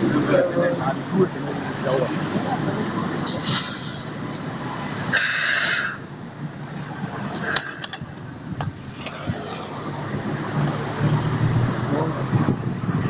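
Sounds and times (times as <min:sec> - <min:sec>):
light-rail train rumbling: 0:00.0 - 0:13.0
loud hiss: 0:05.1 - 0:06.0.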